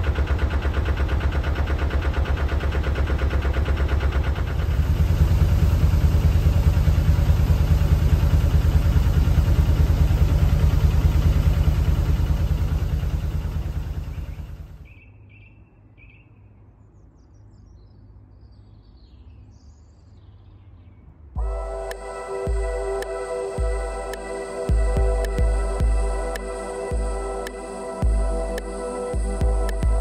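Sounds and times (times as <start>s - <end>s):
diesel engine idling: 0.0s - 14.8s, 21.4s - 30.0s.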